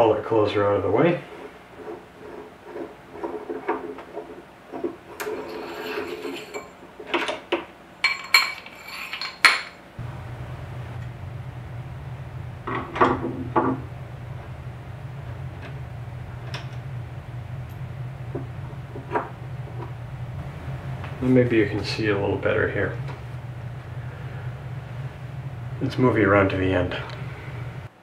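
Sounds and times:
metal lathe parts clinking: 0:05.2 - 0:09.8
steady low hum: 0:07.8 - 0:28.0.

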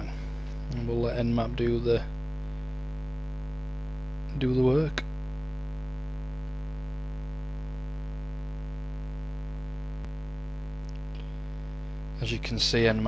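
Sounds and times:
electrical mains hum: 0:00.0 - 0:13.0.

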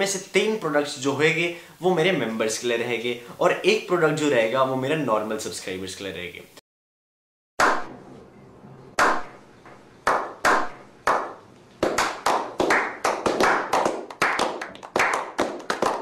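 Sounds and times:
hand clapping: 0:09.0 - 0:09.3, 0:10.0 - 0:16.0
people clapping: 0:10.1 - 0:16.0.

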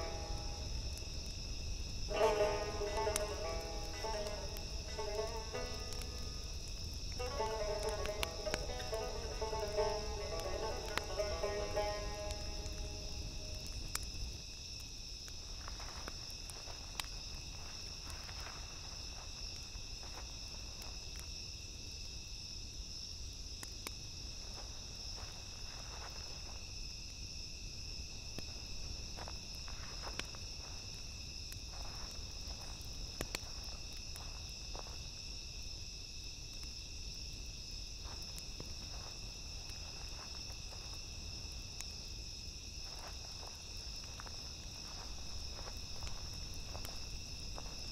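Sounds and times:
crickets chirping: 0:00.0 - 0:47.9
footsteps through dry grass: 0:15.4 - 0:20.8, 0:31.7 - 0:35.0, 0:42.8 - 0:47.9.

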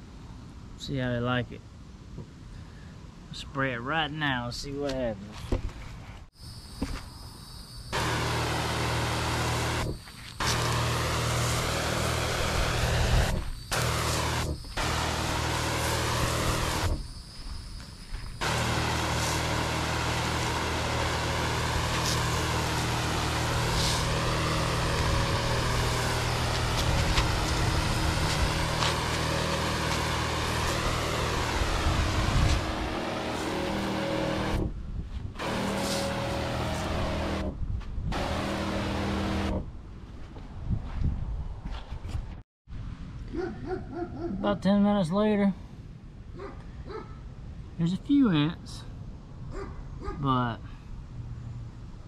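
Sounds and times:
electric pump humming: 0:07.9 - 0:34.8, 0:35.4 - 0:39.7
sprayer wand hissing: 0:08.0 - 0:17.1, 0:18.2 - 0:34.7, 0:35.4 - 0:37.4.

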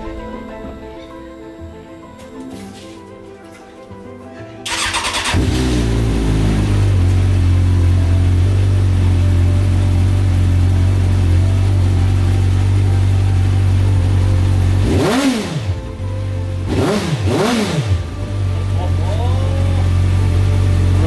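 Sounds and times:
buggy engine idling: 0:04.7 - 0:21.0
engine revving: 0:04.7 - 0:21.0.

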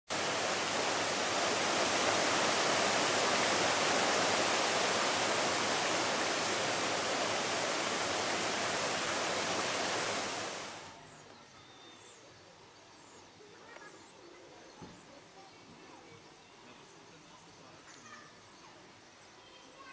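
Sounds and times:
waterfall rushing: 0:00.1 - 0:10.9.

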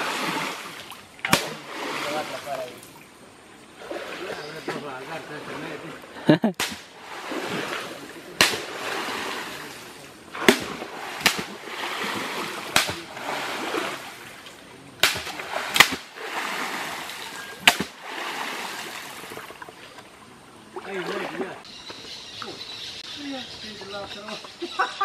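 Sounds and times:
wooden pole slapping water: 0:00.0 - 0:03.0, 0:03.8 - 0:20.1, 0:20.7 - 0:21.6
water splashing: 0:00.0 - 0:21.7.

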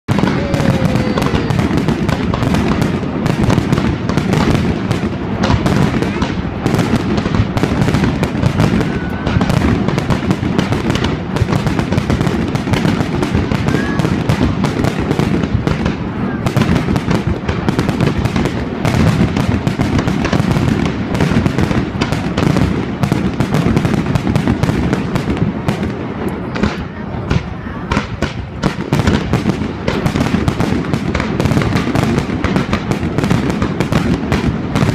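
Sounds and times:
fireworks bangs and crackles: 0:00.0 - 0:34.9.

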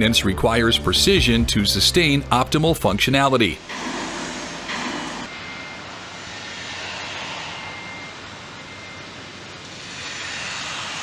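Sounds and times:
steady rushing noise: 0:03.6 - 0:11.0.

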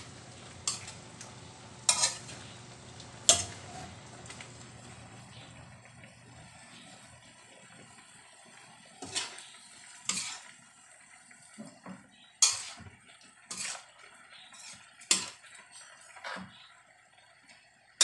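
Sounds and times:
metal spatula scraping a wok: 0:00.5 - 0:01.1, 0:01.8 - 0:02.6, 0:03.2 - 0:04.0, 0:09.0 - 0:10.5, 0:12.4 - 0:12.9, 0:13.5 - 0:15.4.

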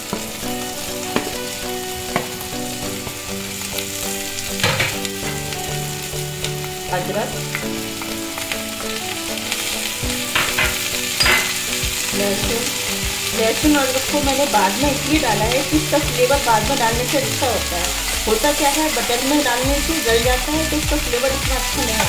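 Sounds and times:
vegetables sizzling in a wok: 0:00.0 - 0:22.0.

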